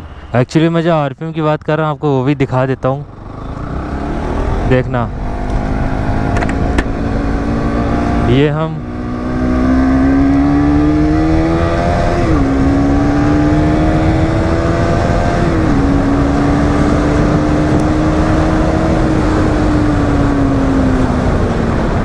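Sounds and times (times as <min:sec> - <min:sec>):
motorcycle engine accelerating: 0:03.0 - 0:22.0
person talking: 0:08.3 - 0:08.8.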